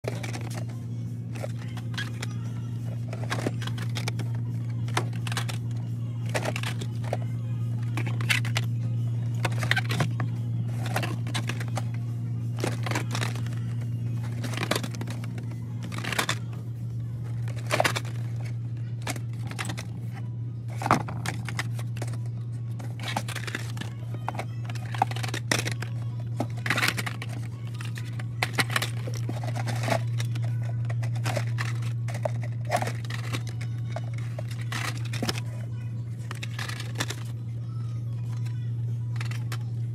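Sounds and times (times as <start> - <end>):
steady low hum: 0.0 - 39.9
plastic blister packs crinkling: 9.4 - 16.5, 20.7 - 35.6.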